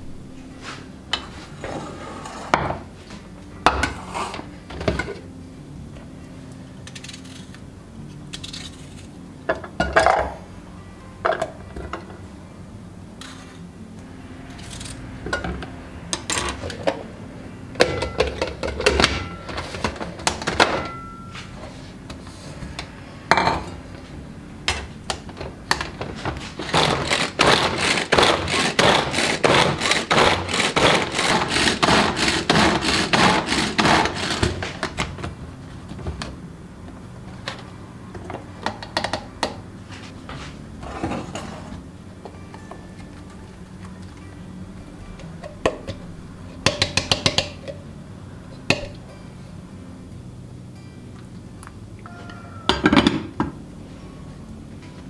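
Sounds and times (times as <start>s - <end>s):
pull-cord food chopper rattling: 26.6s - 34.8s.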